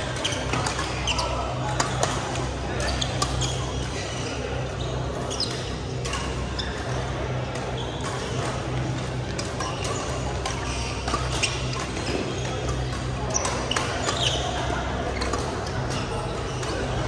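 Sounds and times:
background chatter: 0.0 - 17.0
shoes squeaking on court floor: 0.0 - 17.0
rackets striking shuttlecock: 5.5 - 17.0.

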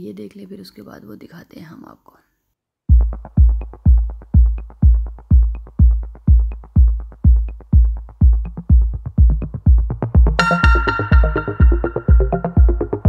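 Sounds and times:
drum-machine kick beat: 2.9 - 13.0.

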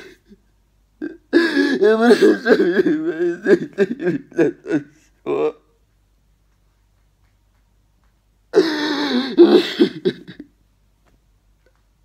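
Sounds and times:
man sobbing: 0.0 - 5.8, 8.5 - 10.5.

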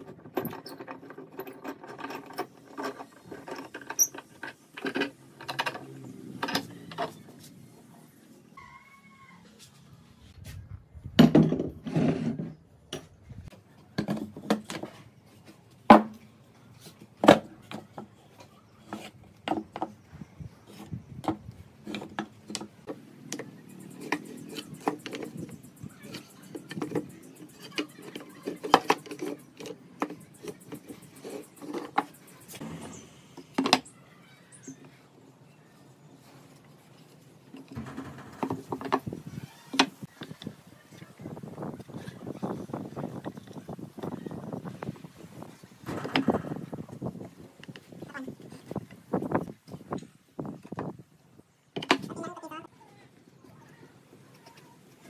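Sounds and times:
wood and tools knocking: 17.2 - 20.0, 20.7 - 33.9, 37.5 - 40.4.

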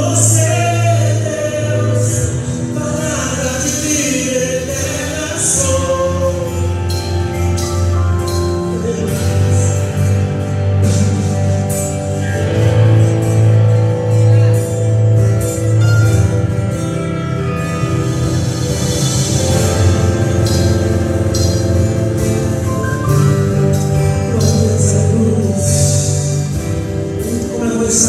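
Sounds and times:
person singing: 0.0 - 13.3, 19.4 - 28.0
worship band playing: 0.0 - 28.0.

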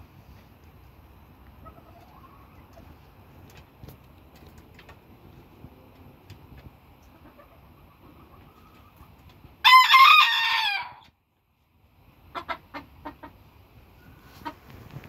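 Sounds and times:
rooster crowing: 9.6 - 11.0.

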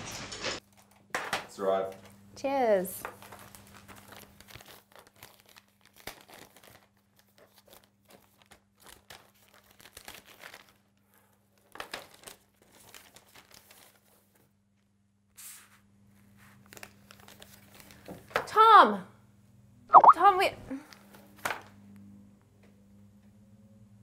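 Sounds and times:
paper crinkling and tearing: 3.1 - 14.4, 16.5 - 18.1.

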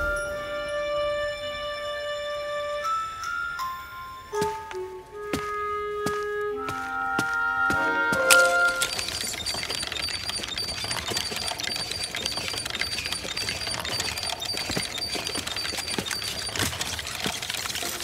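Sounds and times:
toy tricycle rattling on tiles: 8.3 - 18.0.

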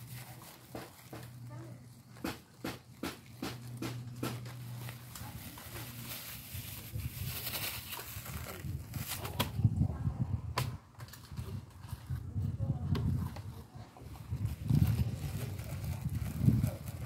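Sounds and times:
plastic bag rustling and crinkling: 0.0 - 9.7, 13.0 - 17.0.

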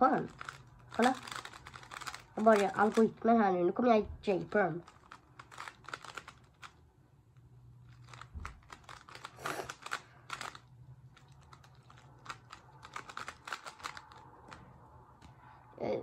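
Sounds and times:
speed cube layers clicking: 0.3 - 3.1, 4.9 - 6.8, 8.0 - 10.6, 11.2 - 14.2.

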